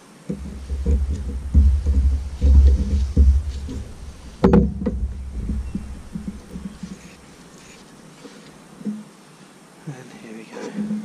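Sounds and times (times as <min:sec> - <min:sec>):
metal knock on wooden table: 0:00.3 - 0:07.1
handling thumps: 0:00.3 - 0:07.8.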